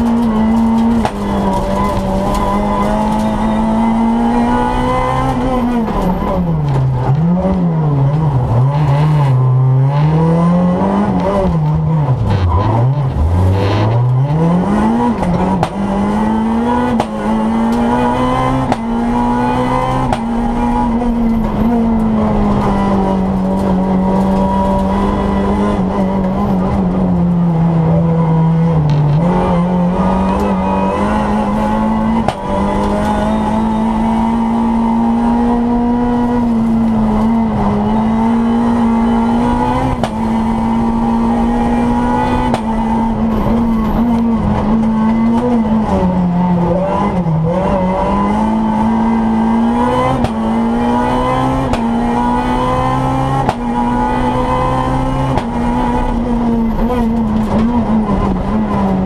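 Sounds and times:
rally car engine at high revs: 0.0 - 59.0.

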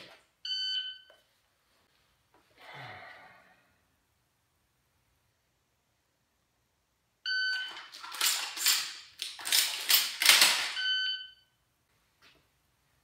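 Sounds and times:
shells clacking into shotgun: 7.7 - 10.8
shot timer beep: 10.7 - 11.5.

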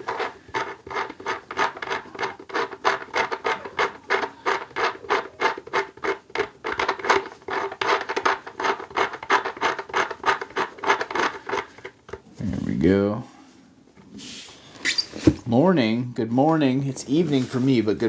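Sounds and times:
cap rubbing and scraping on post: 0.0 - 12.8.

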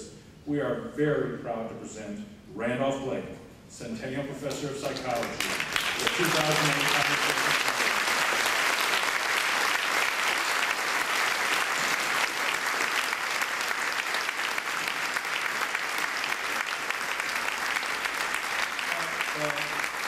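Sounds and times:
audience applauding: 4.8 - 20.0.

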